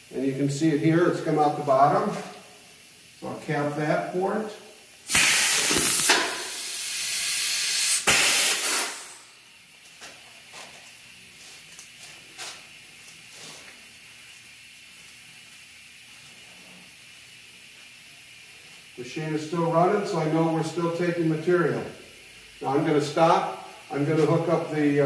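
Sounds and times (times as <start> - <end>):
compressed air hissing: 0.0 - 9.5, 16.0 - 25.0.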